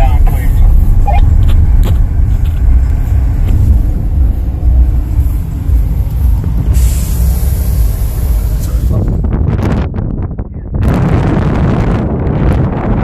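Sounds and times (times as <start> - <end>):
car interior low rumble: 0.0 - 13.0
high hiss: 6.0 - 8.9.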